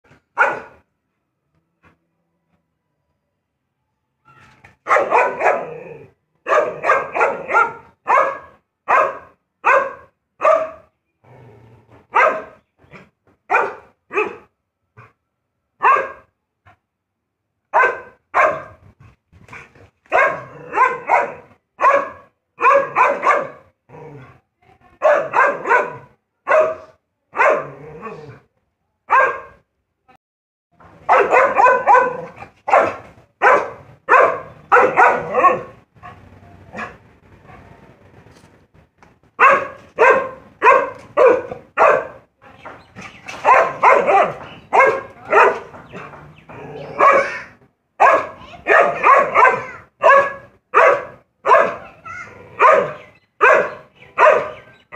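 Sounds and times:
dog barking: 0.4 - 0.8, 4.8 - 5.8, 6.4 - 10.9, 12.1 - 12.6, 13.5 - 14.5, 15.8 - 16.3, 17.7 - 18.8, 20.1 - 23.6, 25.0 - 28.2, 29.1 - 29.6, 31.0 - 37.6, 39.4 - 42.3, 43.4 - 46.2, 46.8 - 54.7.

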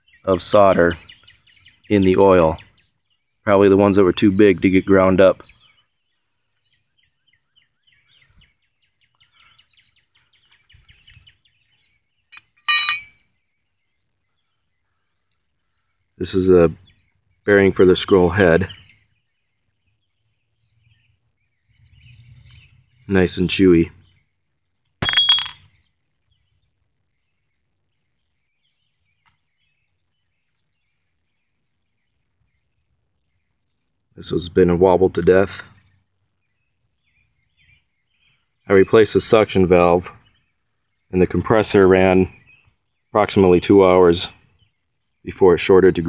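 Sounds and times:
rapid bird chirps: 0.0 - 24.8, 25.4 - 46.0
metal parts clinking: 12.4 - 13.1, 25.0 - 25.6.

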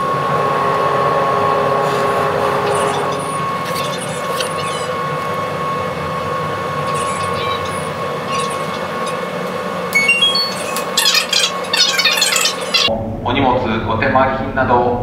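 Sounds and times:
ship machinery drone: 0.0 - 13.5
faint voices: 2.6 - 9.6
rising public address chime: 9.9 - 12.9.

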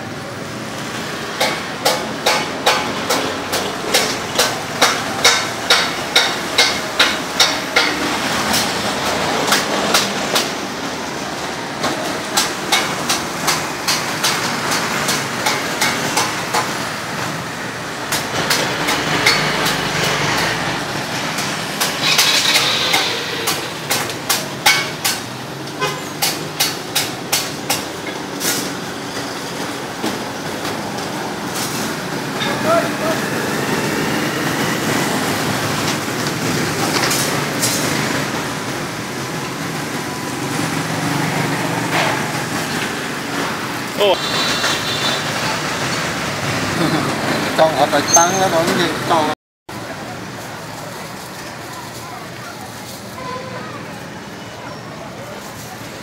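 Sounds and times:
steady background noise: 0.0 - 56.0
repeated sharp knocks: 1.3 - 10.6, 11.8 - 16.9, 18.1 - 28.2.

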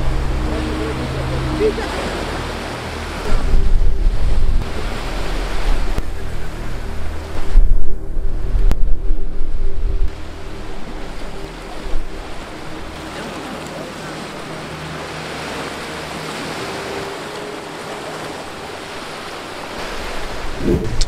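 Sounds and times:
background music: 0.0 - 20.8
surf on rocky shore: 0.0 - 21.0
wind on microphone: 3.1 - 12.8, 16.3 - 21.0.

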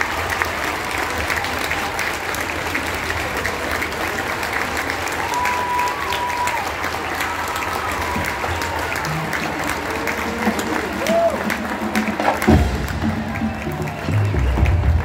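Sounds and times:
crowd clapping: 0.0 - 15.0
high drawn-out cheer: 0.0 - 15.0.

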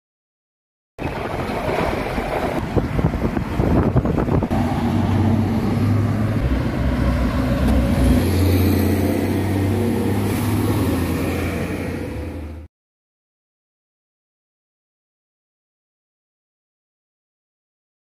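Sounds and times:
traffic engines and tyre noise: 1.0 - 12.7.

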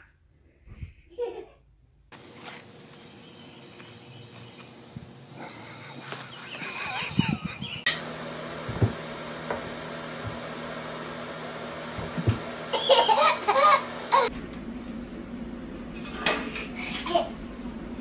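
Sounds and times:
low room hum: 0.0 - 18.0
baby laughing and squealing: 6.4 - 7.9, 12.7 - 14.3
soft bumps: 8.6 - 10.5.

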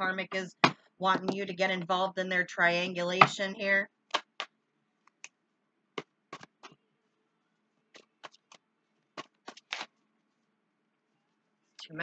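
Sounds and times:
cards being shuffled: 7.9 - 8.6, 9.2 - 10.0.

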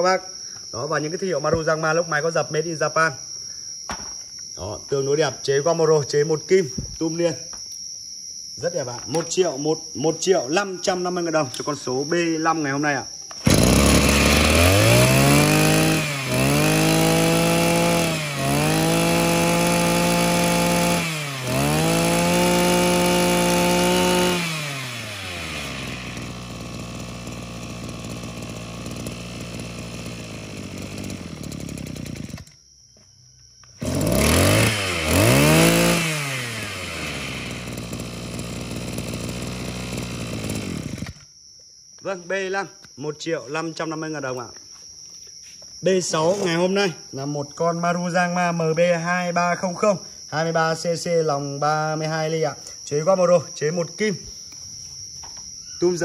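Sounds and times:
brush-cutter engine revving and idling: 13.3 - 32.6, 33.6 - 41.3.

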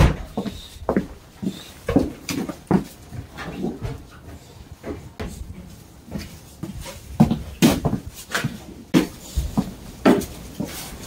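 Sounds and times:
footsteps on wooden boards: 0.0 - 11.0.

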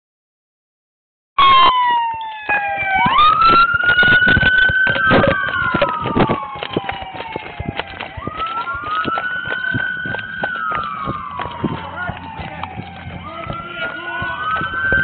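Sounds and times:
police siren wailing: 1.4 - 15.0
camera knocks and rubs: 3.6 - 8.4.

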